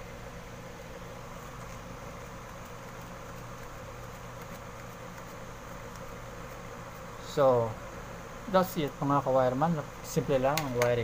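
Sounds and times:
machine hum and hiss: 0.0s - 11.0s.

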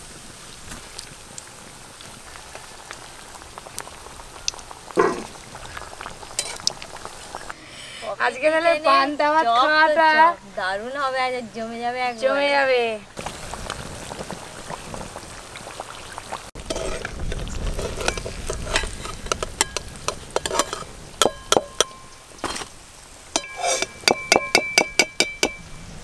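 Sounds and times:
food sizzling in oil: 0.0s - 7.6s, 13.2s - 26.0s
metal ladle clinking against wok: 17.8s - 22.7s, 23.4s - 25.6s.

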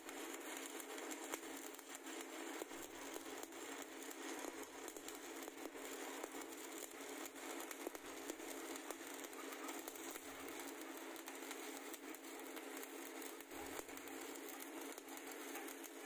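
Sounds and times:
welding arc crackling and popping: 0.0s - 16.0s.

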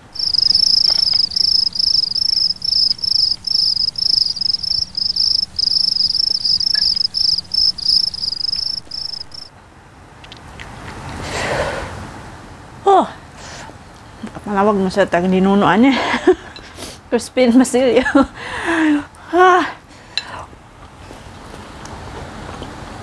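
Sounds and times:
cricket chirping: 0.0s - 9.5s.

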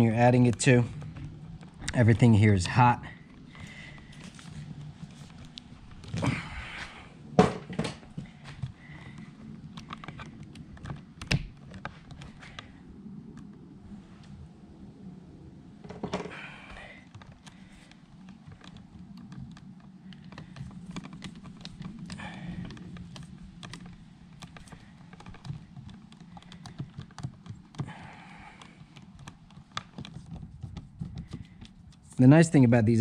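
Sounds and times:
screwdriver turning screws: 17.1s - 32.2s.

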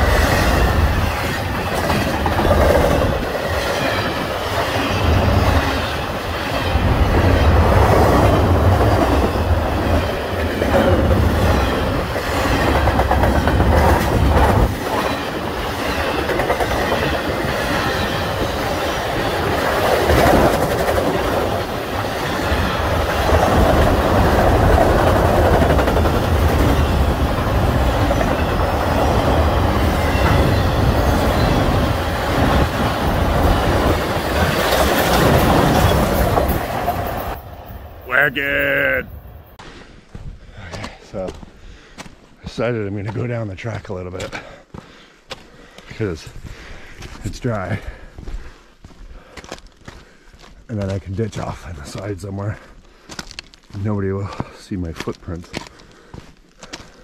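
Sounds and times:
wheels clicking over rail joints: 0.0s - 38.1s
freight train rumble: 0.0s - 39.6s.

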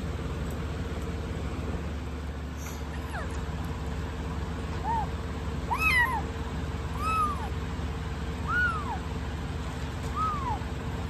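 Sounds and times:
steady low hum: 0.0s - 11.0s
kitten mewing: 2.8s - 3.4s, 4.8s - 6.3s, 6.9s - 7.6s, 8.4s - 9.0s, 10.1s - 10.7s.

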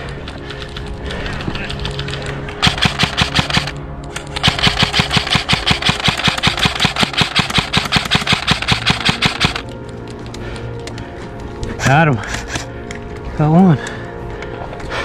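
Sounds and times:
airsoft rifle firing: 2.6s - 9.6s.

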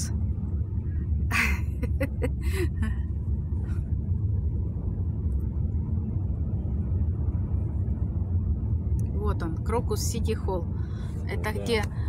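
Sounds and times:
car road rumble from inside: 0.0s - 12.0s.

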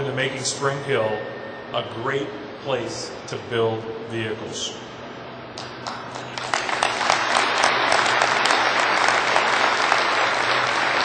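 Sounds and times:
crowd applauding: 5.6s - 11.0s.

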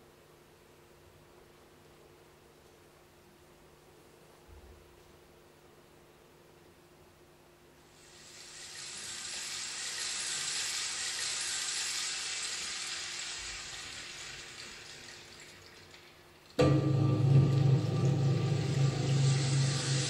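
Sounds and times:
hissing noise swell: 16.7s - 20.0s.

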